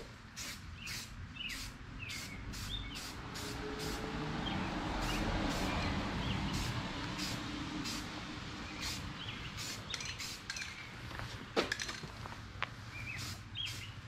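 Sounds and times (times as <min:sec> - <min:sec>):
aerosol can spraying: 0:00.4 - 0:04.0, 0:05.0 - 0:05.8, 0:06.5 - 0:08.1, 0:08.8 - 0:10.6
birds chirping: 0:00.7 - 0:03.2, 0:03.8 - 0:08.0, 0:08.6 - 0:11.2, 0:12.8 - 0:14.0.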